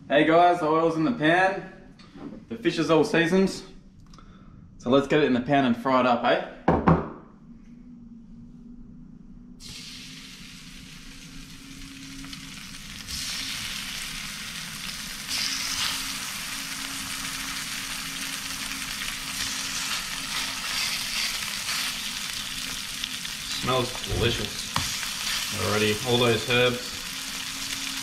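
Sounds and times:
fish sizzling in hot oil: 9.6s - 28.0s.

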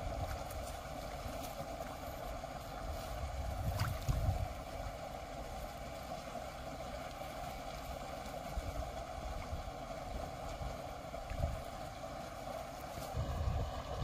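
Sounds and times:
constant hiss-like hum: 0.0s - 14.0s
wind gust on microphone: 13.1s - 14.0s.

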